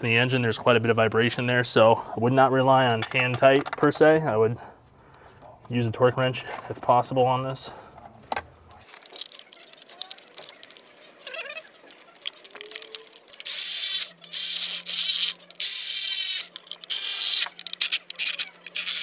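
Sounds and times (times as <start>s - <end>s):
electric ratchet driving screws: 11.6s - 19.0s.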